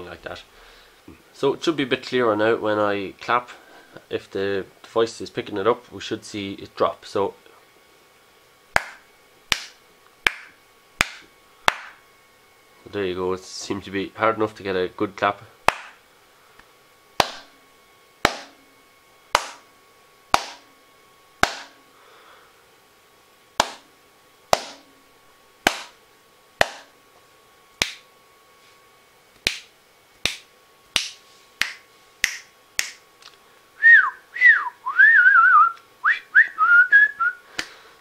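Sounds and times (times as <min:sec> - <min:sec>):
fingers snapping: 0:08.8 - 0:12.0, 0:15.7 - 0:16.0, 0:27.8 - 0:28.0, 0:29.4 - 0:33.4
person whistling: 0:33.8 - 0:37.4.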